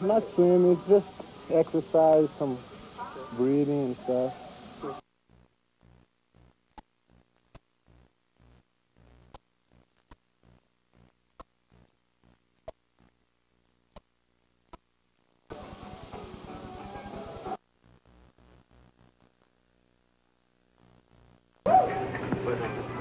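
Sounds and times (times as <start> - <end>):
sharp clicks: 6.7 - 7.7.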